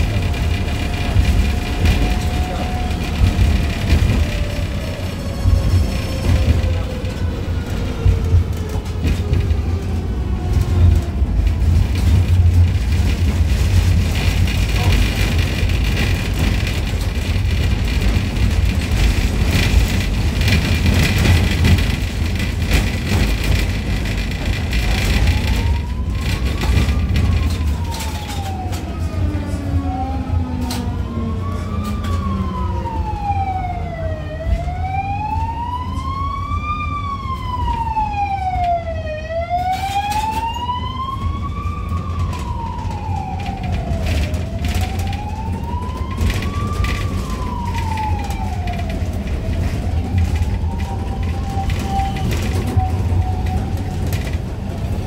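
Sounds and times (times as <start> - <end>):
wheels clattering over track: 0.0 - 28.9
emergency siren wailing: 0.0 - 55.0
tram rumble: 0.0 - 55.0.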